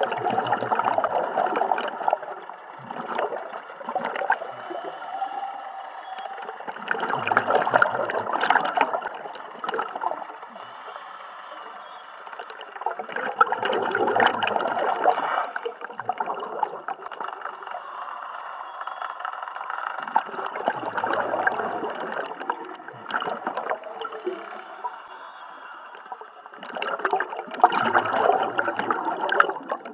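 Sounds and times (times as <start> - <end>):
exhaust bubbles bursting: 0.0 - 29.9
diver inhaling on regulator: 4.0 - 8.0, 10.4 - 13.3, 14.8 - 15.8, 17.3 - 27.4.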